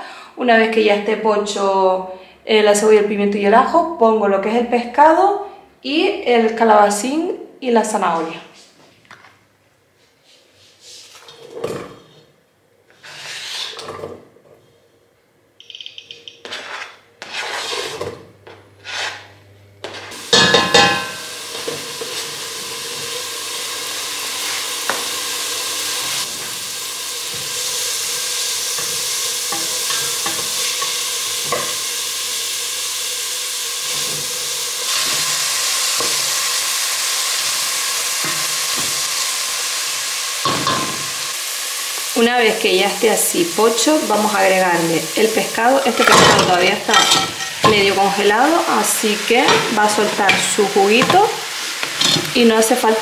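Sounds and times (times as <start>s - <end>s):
oil sizzling: 19.8s - 53.0s
vegetables clattering into pot: 45.9s - 48.2s, 49.4s - 52.4s
spoon stirring in pot: 46.0s - 48.1s, 49.4s - 52.3s.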